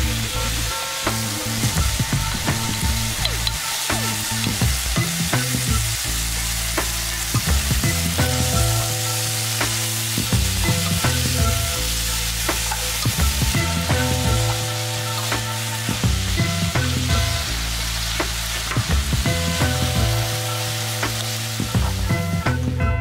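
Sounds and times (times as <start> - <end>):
food sizzling in frying pan: 0.0 - 22.8.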